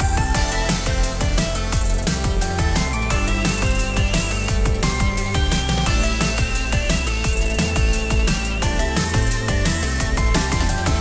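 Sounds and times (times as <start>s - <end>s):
deep kick drum: 0.0s - 11.0s
electronic dance music: 0.0s - 11.0s.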